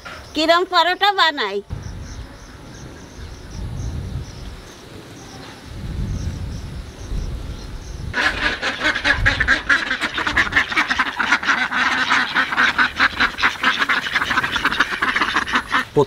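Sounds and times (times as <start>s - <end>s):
low rumble: 1.7s - 4.5s
ducks quacking: 8.1s - 16.0s.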